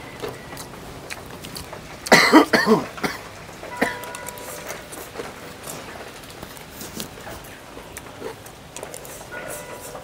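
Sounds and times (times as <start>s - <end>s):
man coughing: 2.1s - 4.1s.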